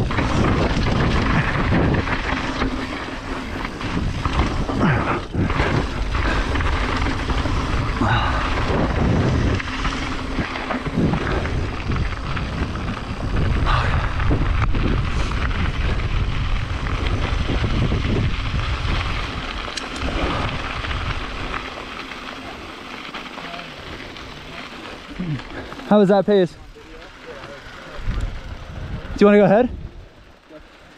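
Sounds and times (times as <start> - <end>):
wind buffeting microphone: 0.0 - 21.9, 27.9 - 30.3
bike rattling: 0.0 - 30.9
tyres rolling on gravel: 0.0 - 30.9.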